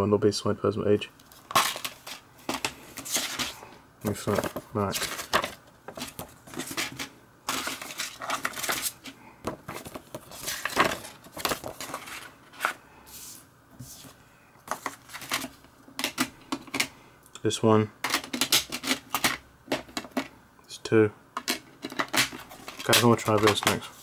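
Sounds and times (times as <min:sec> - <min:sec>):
paper rustling: 0:01.2 - 0:15.6, 0:21.9 - 0:24.0.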